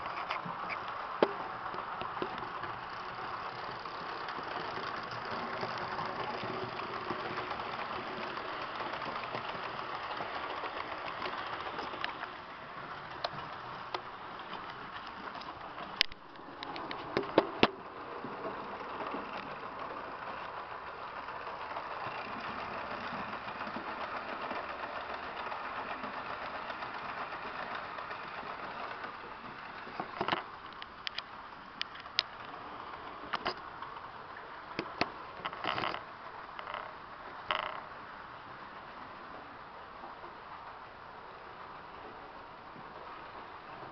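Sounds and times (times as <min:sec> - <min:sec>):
model trains whirring: 0:00.0 - 0:43.9.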